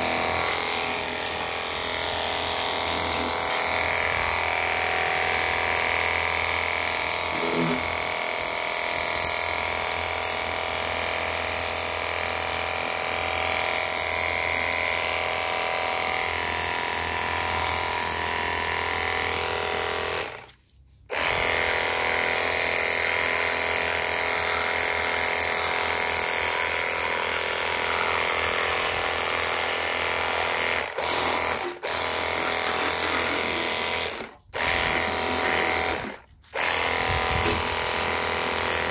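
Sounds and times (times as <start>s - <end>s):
pressure washer motor whine: 0.0s - 20.4s, 21.1s - 38.9s.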